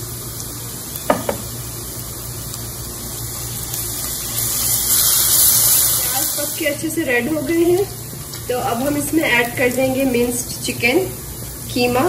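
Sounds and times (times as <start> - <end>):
onions sizzling in oil: 0.0 - 12.0
short knock: 1.1 - 1.4.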